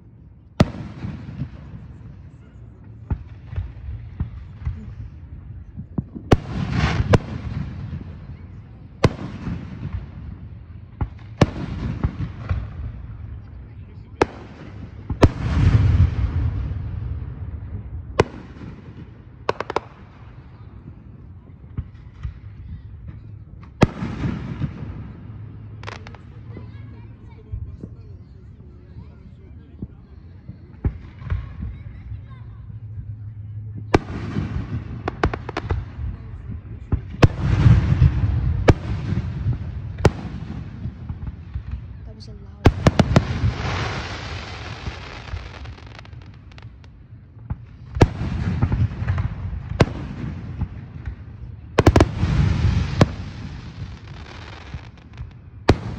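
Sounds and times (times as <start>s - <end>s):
fireworks sharp bangs: 0.6s - 28.0s, 33.4s - 55.9s
fireworks deep boom: 0.6s - 55.9s.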